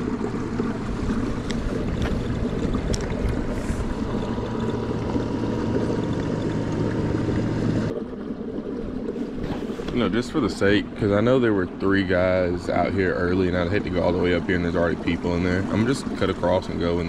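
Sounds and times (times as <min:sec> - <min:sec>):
low hum: 0:00.0 - 0:17.0
water rushing: 0:00.0 - 0:17.0.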